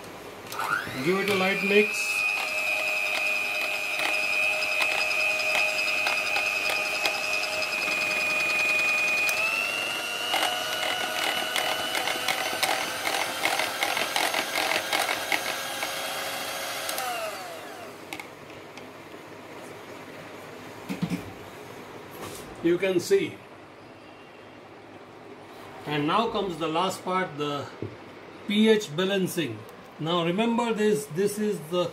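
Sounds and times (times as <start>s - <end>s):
electric mixer motor whining: 0.5s - 18.3s.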